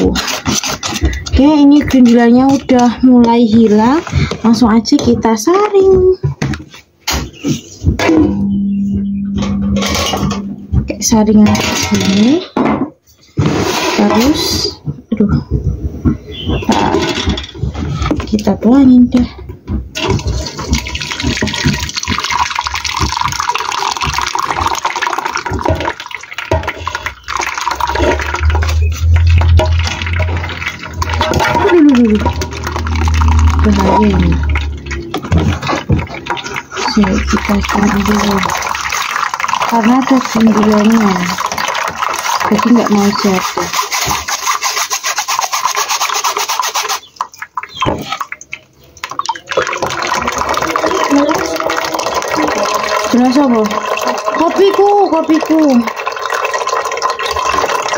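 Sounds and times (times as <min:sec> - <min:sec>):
metal sieve rasping: 0:00.0 - 0:04.6, 0:20.0 - 0:48.3
batter pouring and splashing: 0:20.0 - 0:57.9
low rumble: 0:27.8 - 0:36.2.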